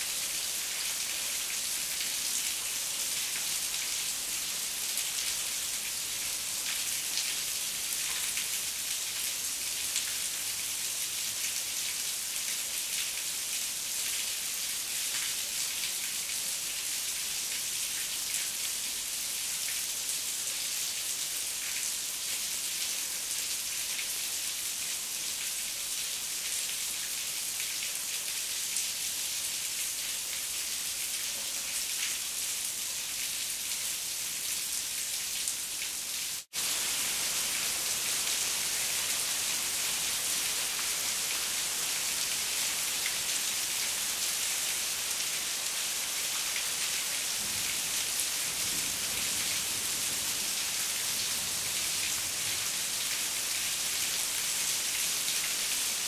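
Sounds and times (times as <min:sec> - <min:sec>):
heavy rain falling: 0:36.4 - 0:56.0.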